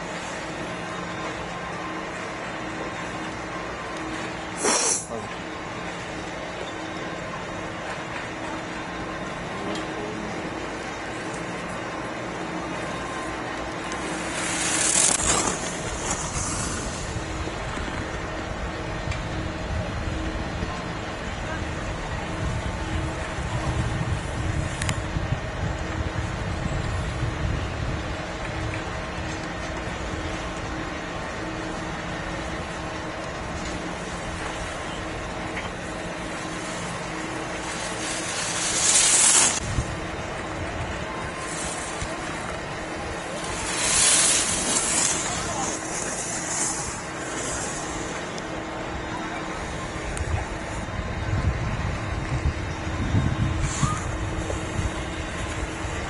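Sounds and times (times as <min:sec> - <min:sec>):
faint hum: 0:00.0 - 0:56.0
skis scraping over hard snow: 0:13.7 - 0:18.2, 0:35.7 - 0:48.6.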